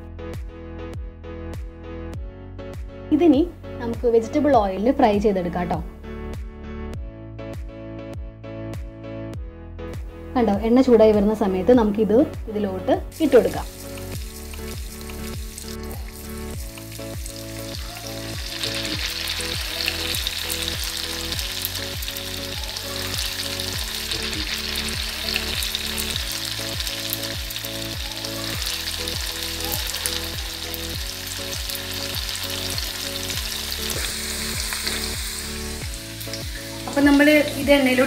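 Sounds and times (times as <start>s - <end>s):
background music with steady beat: 0.0s - 38.0s
food deep-frying in oil: 13.1s - 38.0s.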